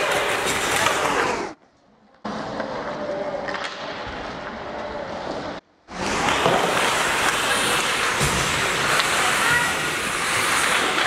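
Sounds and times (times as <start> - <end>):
skates scraping ice: 0.0 - 1.6, 2.3 - 11.0
hockey stick clacks: 6.1 - 11.0.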